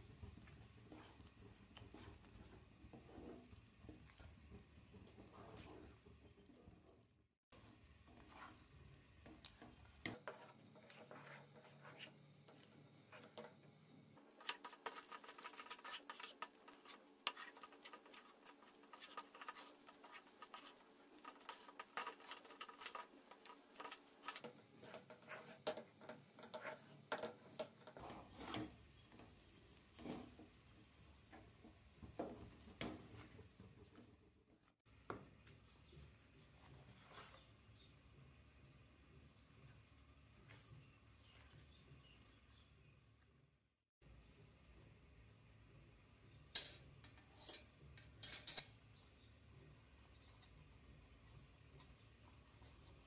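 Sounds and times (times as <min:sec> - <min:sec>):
spatula scraping dough in pan: 0:00.0 - 0:06.5, 0:07.6 - 0:34.1, 0:46.6 - 0:48.6.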